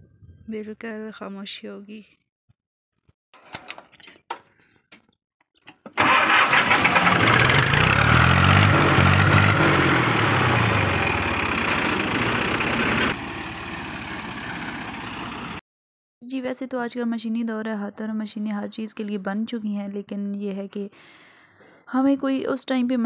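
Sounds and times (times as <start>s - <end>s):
tractor diesel engine running: 6.0s - 15.6s.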